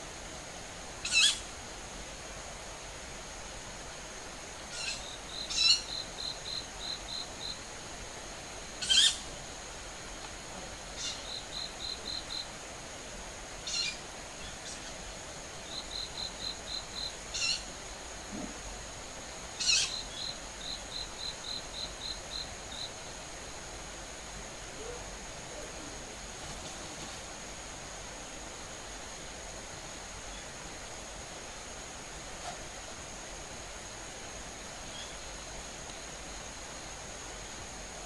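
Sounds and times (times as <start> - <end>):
harsh high bird calls: 1.0 - 1.4, 4.7 - 5.9, 8.8 - 9.2, 13.6 - 15.0, 17.3 - 17.7, 19.6 - 20.0
high-pitched insect drone: 4.7 - 7.7, 8.3 - 9.7, 10.8 - 12.6, 13.6 - 18.5, 19.4 - 23.6.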